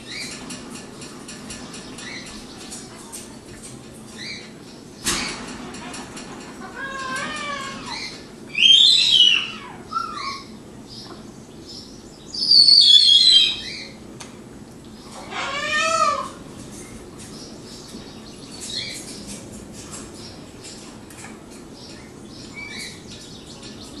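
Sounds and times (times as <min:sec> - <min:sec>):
high-pitched animal cries: 0:06.6 - 0:10.5, 0:15.2 - 0:16.4.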